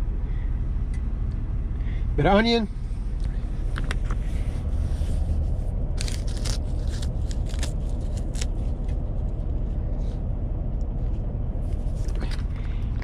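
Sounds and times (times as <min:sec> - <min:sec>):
diesel truck engine idling: 0:00.0 - 0:13.0
light clicks and rustles: 0:10.8 - 0:13.0.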